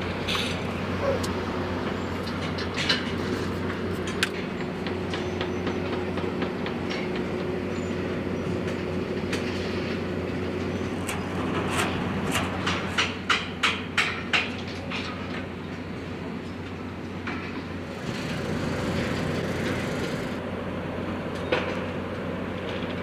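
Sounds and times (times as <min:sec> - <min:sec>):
low mechanical drone: 0:00.0 - 0:23.0
sharp clanks and knocks: 0:01.2 - 0:07.6, 0:08.6 - 0:15.8, 0:16.5 - 0:18.3.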